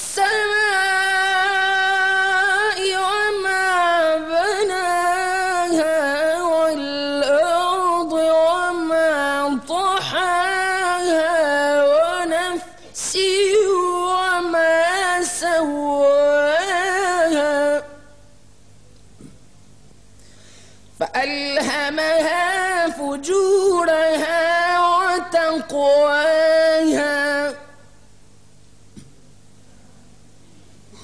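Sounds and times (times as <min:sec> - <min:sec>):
man reciting in melodic chant: 0:21.0 - 0:27.8.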